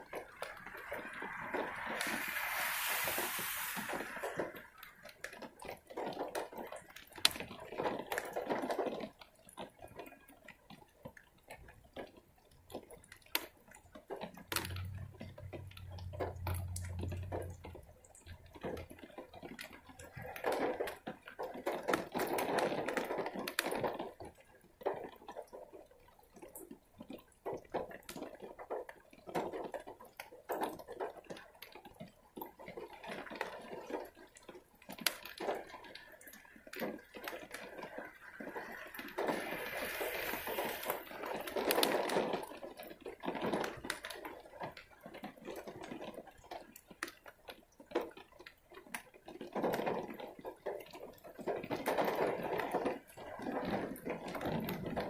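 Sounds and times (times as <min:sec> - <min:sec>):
heavy rain: 0:00.0 - 0:09.0, 0:14.2 - 0:24.0, 0:35.0 - 0:42.7, 0:51.1 - 0:55.0
water dripping and splashing: 0:00.0 - 0:55.0.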